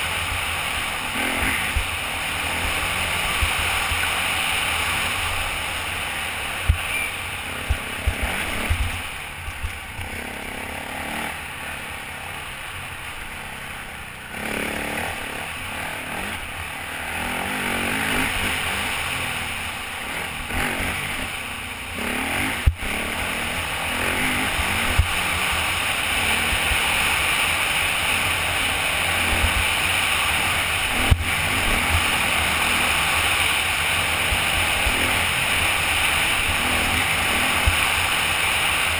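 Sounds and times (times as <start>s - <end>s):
off-road motorcycle engine: 0.0s - 38.9s
wind rush on helmet: 6.5s - 10.0s.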